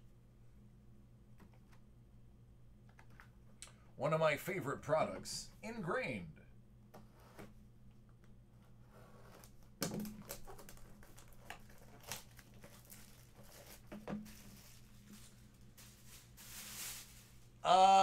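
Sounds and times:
plastic wrapper crinkling: 0:10.0 - 0:17.3.

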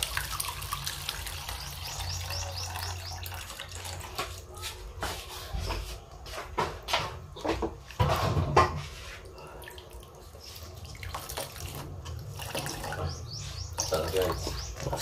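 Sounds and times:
liquid trickling into a wok: 0:00.0 - 0:04.5, 0:07.4 - 0:15.0.

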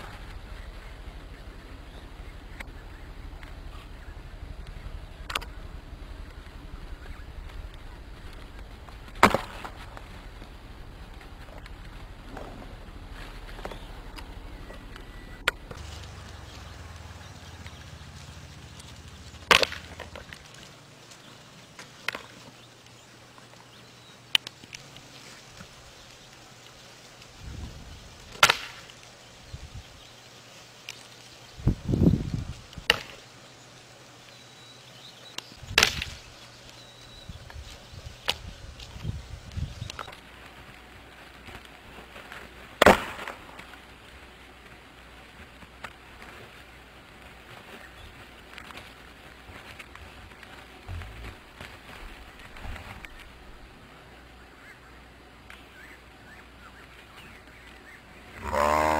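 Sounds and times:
goat horns cracking together: 0:18.7 - 0:20.8.

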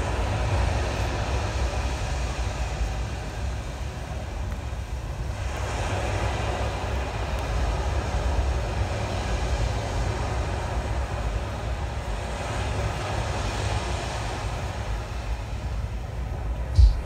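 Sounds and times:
low rumble: 0:14.8 - 0:17.0.

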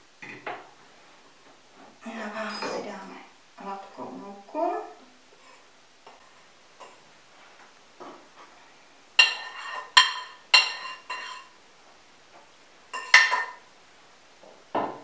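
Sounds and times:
spoon scraping ceramic dish: 0:09.2 - 0:11.5, 0:13.0 - 0:13.6.

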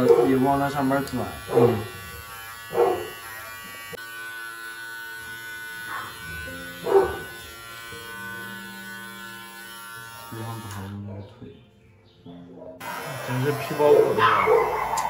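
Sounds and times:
electric pet clipper buzzing: 0:00.0 - 0:11.0, 0:12.8 - 0:15.0.

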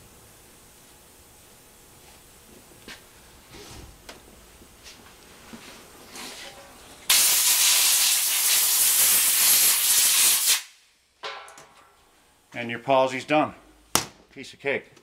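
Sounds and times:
air blow gun hissing: 0:07.1 - 0:10.7.

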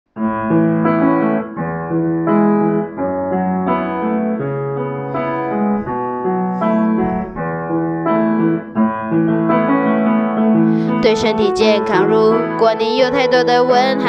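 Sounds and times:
piano chords: 0:00.2 - 0:14.0.

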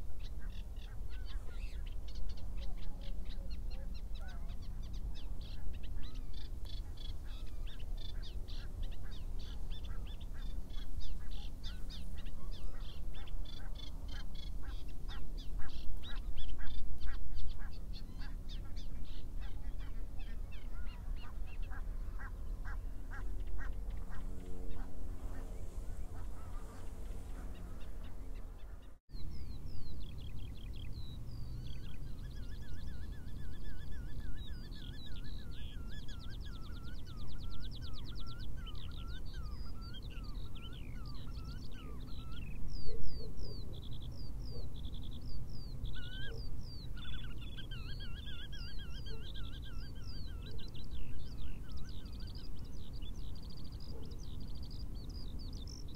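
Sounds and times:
low rumble of wind: 0:00.0 - 0:55.9
songbirds singing and trilling: 0:00.0 - 0:55.9.

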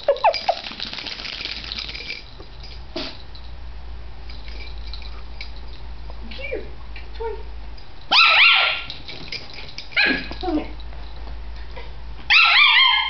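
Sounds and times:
puppy yapping: 0:08.1 - 0:08.9, 0:10.0 - 0:10.6, 0:12.3 - 0:13.0.

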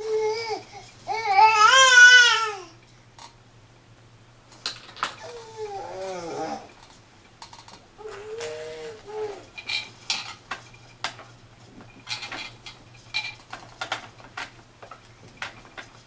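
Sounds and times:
plastic toys clicking and clacking: 0:04.5 - 0:05.4, 0:06.0 - 0:08.5, 0:09.5 - 0:16.0
baby cooing: 0:05.2 - 0:06.7, 0:08.0 - 0:09.5.

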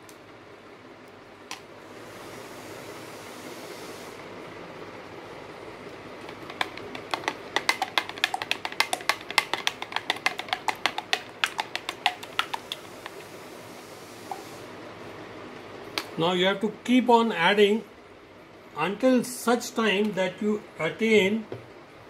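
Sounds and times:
metal spatula clicking on plastic beaker: 0:06.3 - 0:13.2.

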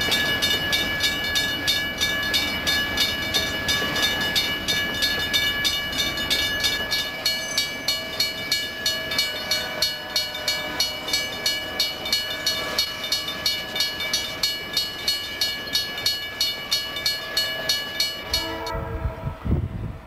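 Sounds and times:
railroad crossing bell ringing: 0:00.0 - 0:19.3.

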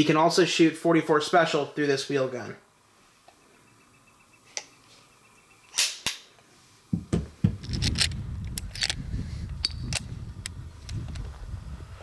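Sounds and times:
revolver cylinder loading clicks: 0:07.6 - 0:11.2.

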